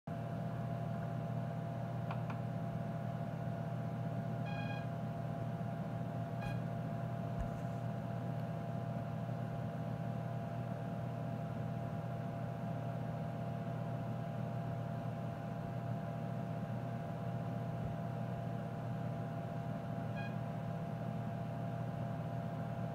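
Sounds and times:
computer electrical hum: 0:00.1 - 0:22.9
computer short beep: 0:04.5 - 0:04.9, 0:06.4 - 0:06.7.

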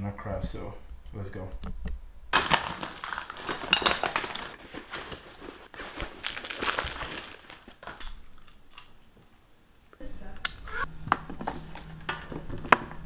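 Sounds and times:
cloth rustling and scraping: 0:04.4 - 0:07.9.

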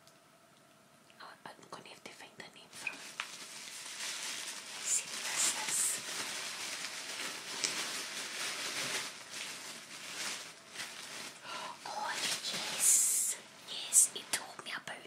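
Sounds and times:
tissue paper rustling: 0:02.7 - 0:14.4.

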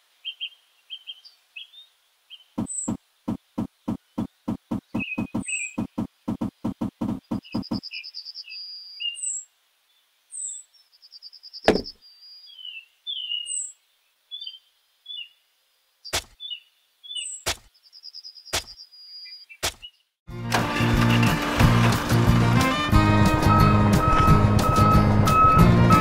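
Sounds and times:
birds chirping and trilling: 0:00.2 - 0:20.2
sharp knocks: 0:02.6 - 0:07.8, 0:11.7 - 0:11.9
music: 0:20.3 - 0:26.0.

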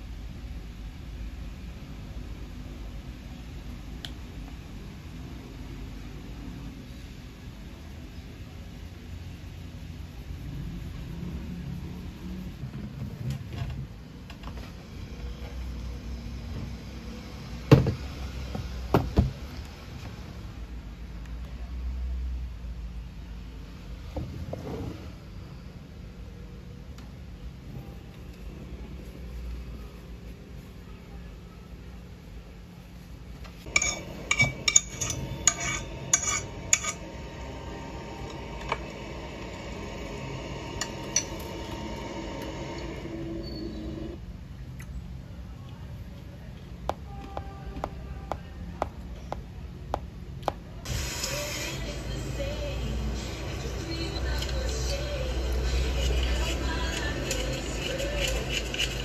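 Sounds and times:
low steady rumble: 0:00.0 - 0:17.7.

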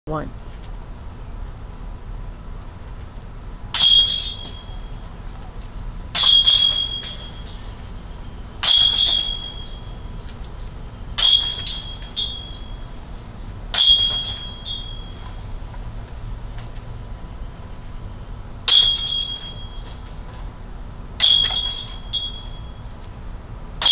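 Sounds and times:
disc golf basket chains jingling: 0:03.8 - 0:05.6, 0:06.2 - 0:13.0, 0:13.7 - 0:15.5, 0:18.7 - 0:20.5, 0:21.2 - 0:22.9.

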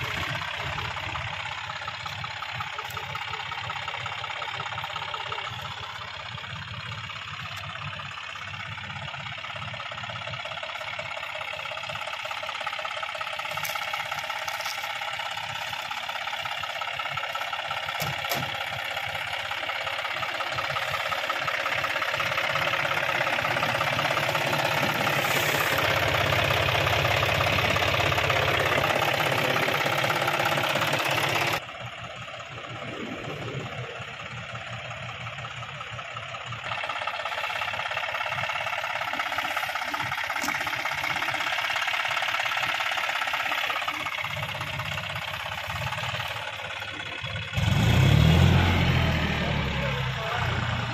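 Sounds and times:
tractor diesel engine running hard: 0:00.0 - 0:50.9.

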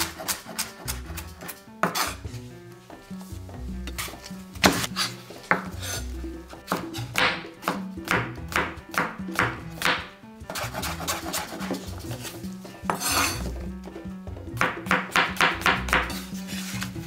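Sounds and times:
background music: 0:00.0 - 0:17.0
cutlery clinking and scraping dish: 0:12.9 - 0:13.4.

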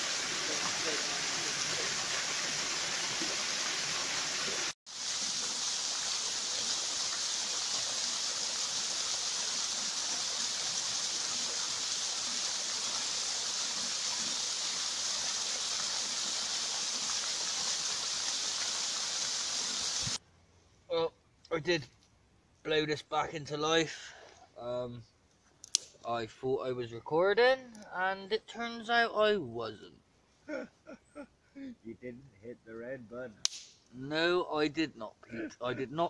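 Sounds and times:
waterfall splashing over rocks: 0:00.0 - 0:20.2.

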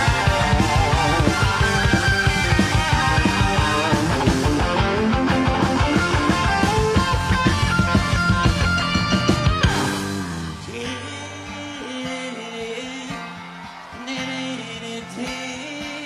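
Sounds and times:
hard-hit drums: 0:00.0 - 0:11.0
rock band playing: 0:00.0 - 0:16.0.

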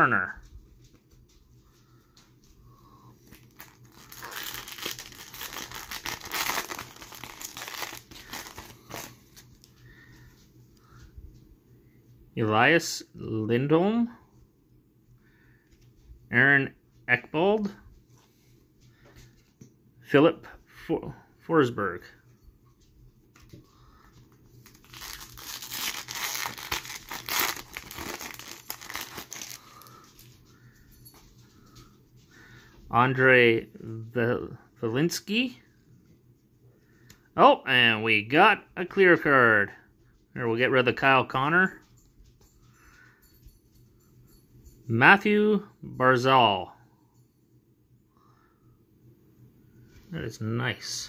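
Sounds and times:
foil wrapper tearing and crinkling: 0:03.3 - 0:09.2, 0:24.6 - 0:29.9.

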